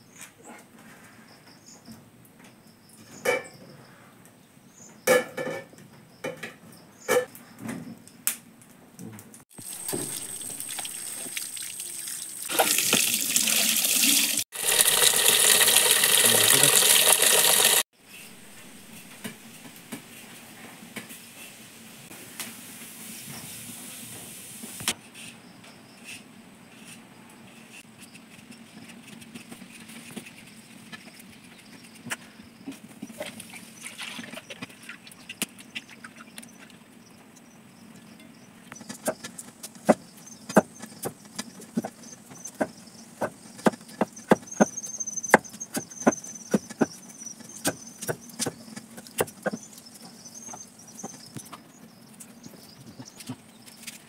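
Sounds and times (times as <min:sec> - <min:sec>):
potatoes peeled and rinsed in water: 0:09.5 - 0:20.2, 0:32.8 - 0:37.4.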